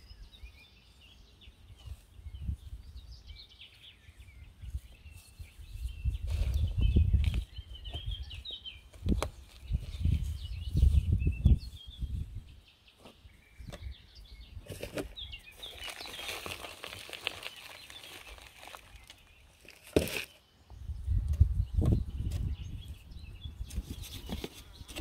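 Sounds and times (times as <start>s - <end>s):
small birds chirping: 0.0s - 25.0s
gloved hands rustling soil: 1.0s - 13.4s, 14.7s - 20.4s.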